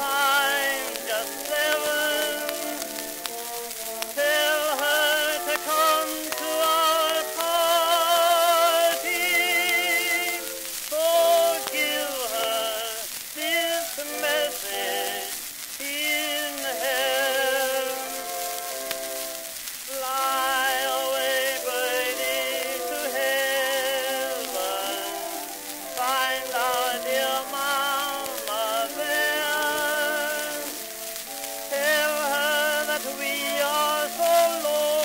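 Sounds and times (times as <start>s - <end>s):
small orchestra: 0.0s - 13.0s
record surface hiss and crackle: 0.0s - 35.0s
tenor singing with vibrato: 0.0s - 35.0s.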